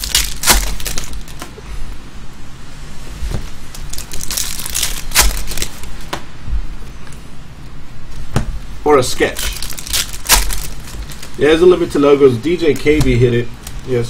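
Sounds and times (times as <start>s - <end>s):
foil wrapper crinkling and tearing: 0.0s - 1.5s, 3.7s - 6.0s, 9.1s - 14.0s.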